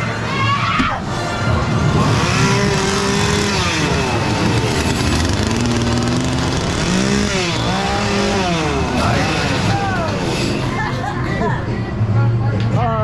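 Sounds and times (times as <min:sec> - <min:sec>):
motor revving up and down: 0:01.0 - 0:11.1.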